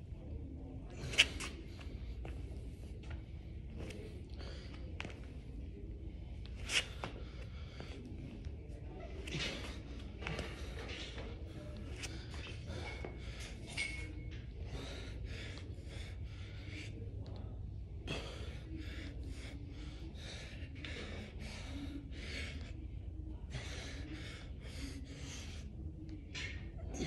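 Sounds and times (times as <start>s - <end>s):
low steady hum: 0.0s - 27.0s
man breathing hard: 14.6s - 17.1s, 18.0s - 22.8s.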